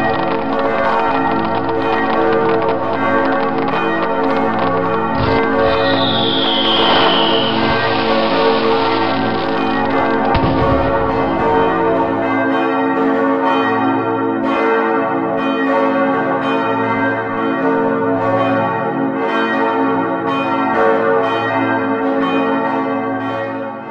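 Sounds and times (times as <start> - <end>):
church bells pealing: 7.9 - 23.9.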